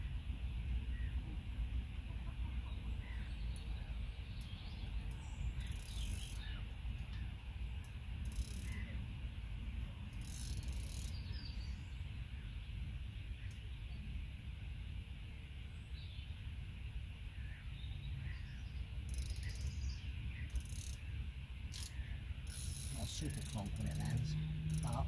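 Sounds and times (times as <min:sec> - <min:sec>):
birds chirping: 0:02.1 - 0:14.4, 0:15.2 - 0:25.0
fishing reel winding: 0:05.6 - 0:06.4, 0:08.2 - 0:08.8, 0:10.1 - 0:11.2, 0:19.1 - 0:19.6, 0:20.5 - 0:21.0, 0:21.7 - 0:25.0.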